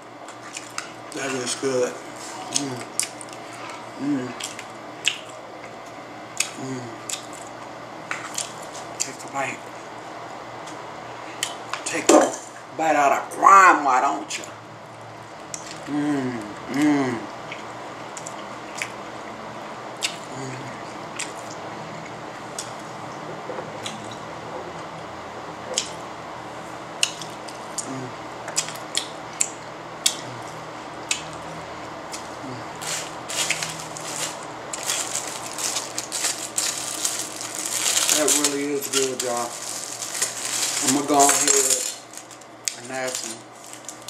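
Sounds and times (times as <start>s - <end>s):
chewing and mouth sounds: 0.3s - 1.4s, 2.4s - 9.2s, 20.0s - 22.8s, 25.7s - 26.0s, 27.0s - 31.5s, 32.1s - 42.8s
rustling: 32.8s - 42.4s.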